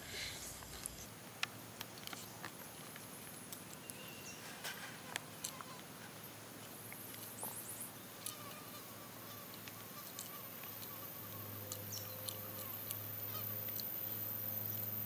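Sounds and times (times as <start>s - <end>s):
noodles chewed and slurped: 0.1s - 8.6s, 9.2s - 15.0s
high insect drone: 7.4s - 15.0s.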